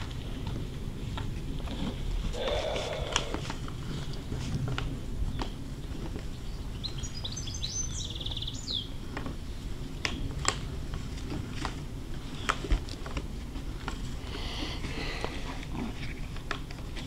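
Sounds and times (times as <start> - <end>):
bird chirping and trilling: 6.4 - 8.9.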